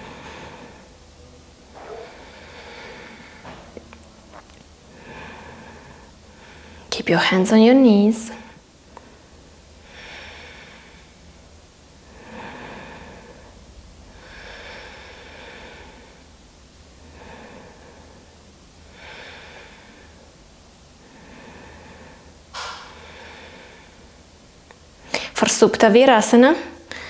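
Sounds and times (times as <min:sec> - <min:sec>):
woman breathing slowly: 0:00.0 - 0:07.0, 0:08.4 - 0:25.4.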